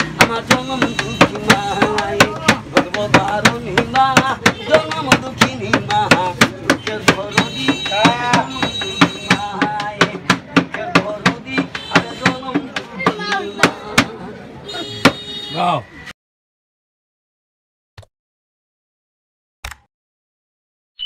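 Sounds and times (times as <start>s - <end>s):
man singing: 0.0s - 14.5s.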